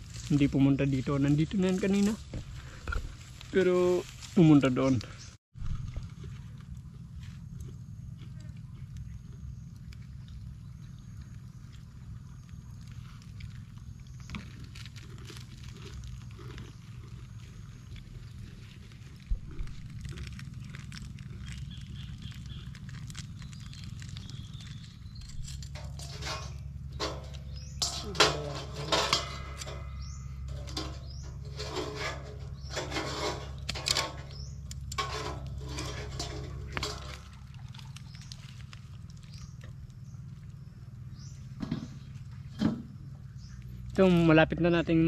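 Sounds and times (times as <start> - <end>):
low rumble: 5.1 - 45.0
steel bowl and utensils clattering: 25.4 - 38.3.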